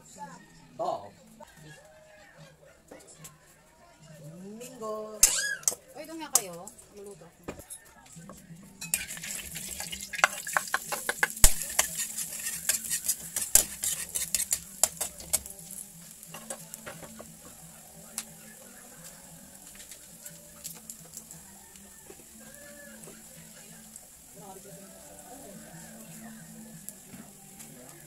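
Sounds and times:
garlic and onion sizzling in oil: 4.6 - 6.9, 8.2 - 28.0
utensil scraping a pan: 8.8 - 15.5.

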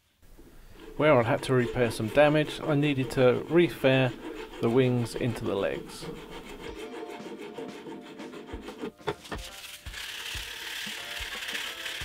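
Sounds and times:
file rasping on wood: 0.6 - 12.0.

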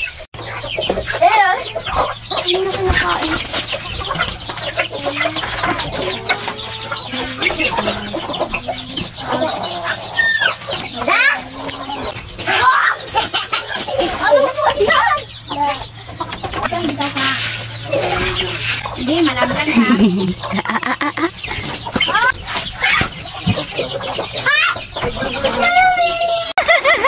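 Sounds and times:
chickens clucking and calling: 0.0 - 27.0.

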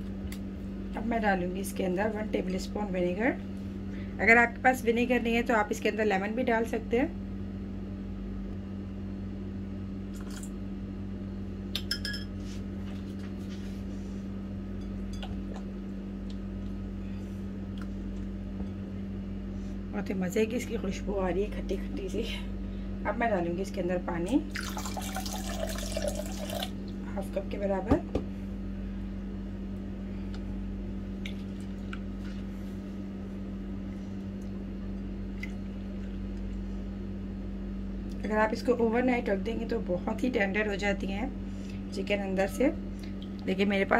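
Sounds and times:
steady low hum: 0.0 - 43.9
glass chink: 11.9 - 12.3.

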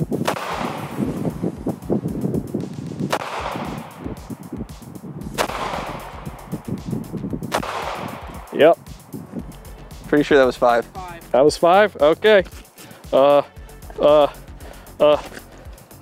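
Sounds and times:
revolver shots: 0.1 - 1.3, 3.0 - 4.3, 5.3 - 6.5, 7.4 - 8.5.

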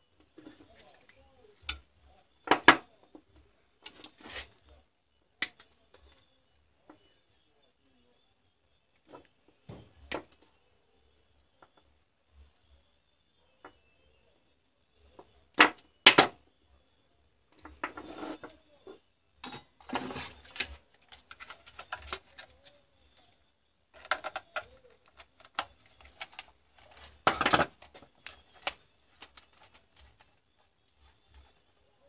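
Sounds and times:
wires and tools handled on workbench: 0.2 - 6.3, 17.5 - 31.8
loud handling noise: 19.4 - 22.5.

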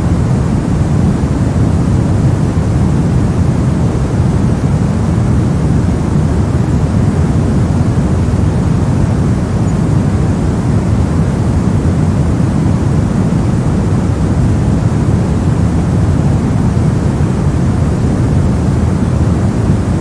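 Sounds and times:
soft white noise: 0.0 - 20.0.

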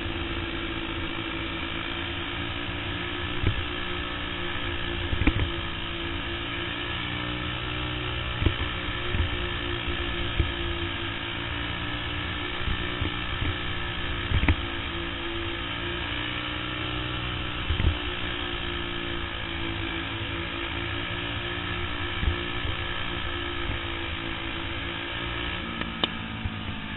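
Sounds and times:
kart engine running hard: 0.0 - 26.9.

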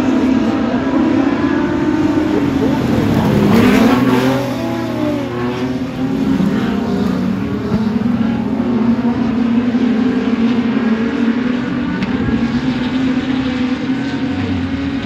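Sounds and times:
race car engines: 0.0 - 15.0.

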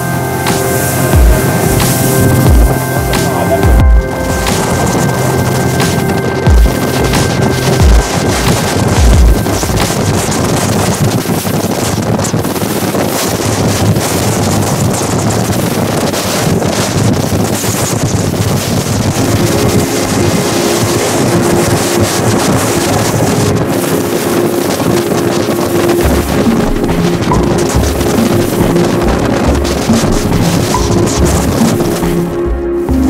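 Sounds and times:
steady hum: 0.0 - 11.2
hull rushing through water: 0.0 - 33.0
outboard engines running: 0.0 - 33.0
wind buffeting microphone: 0.0 - 33.0.

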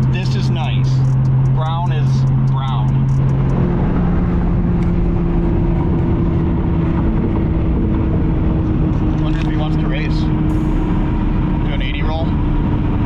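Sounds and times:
car engine at highway speed: 0.0 - 13.0
road hum: 0.0 - 13.0.

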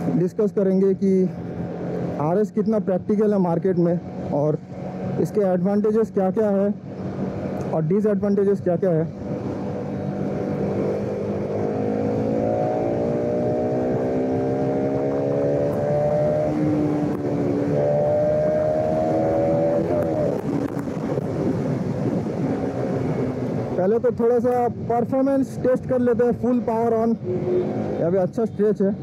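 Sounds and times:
motorcycle engine accelerating: 9.1 - 23.9, 26.2 - 29.0.

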